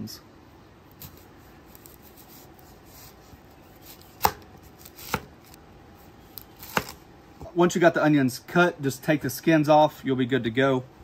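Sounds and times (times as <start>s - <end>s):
knife slicing onion: 0.9s - 5.6s, 6.2s - 7.0s.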